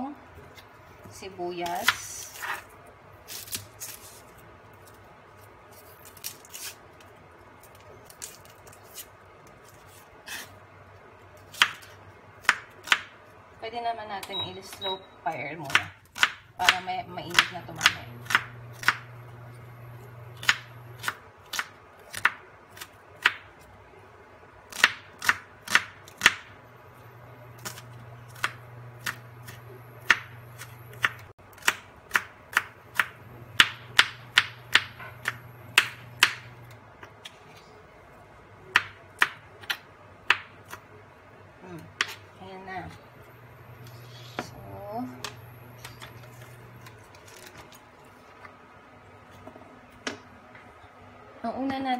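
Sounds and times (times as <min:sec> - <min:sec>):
knife chopping on wooden board: 0:28.4 - 0:36.5.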